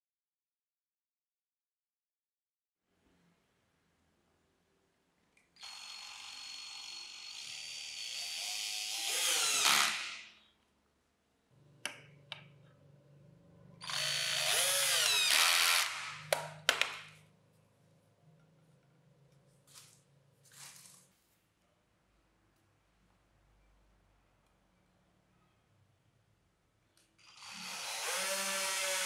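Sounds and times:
cordless drill whirring: 5.6s - 10.4s, 13.8s - 16.3s, 27.2s - 29.0s.

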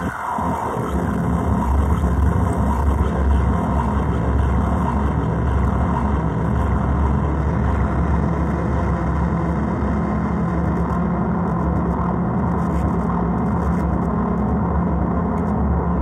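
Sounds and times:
dense bass-heavy noise drone: 0.0s - 16.0s.

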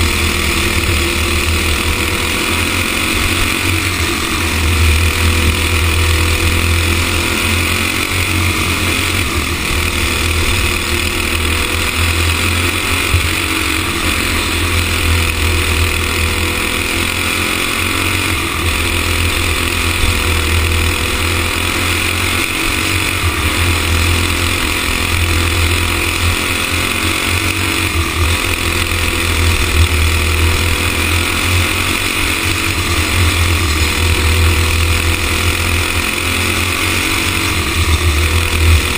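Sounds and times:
go-kart engine revving: 0.0s - 38.9s.

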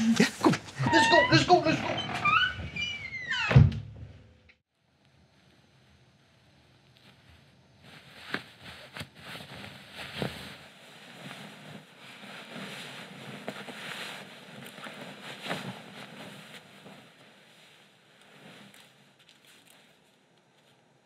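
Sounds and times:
cloth rustling: 6.9s - 21.0s.

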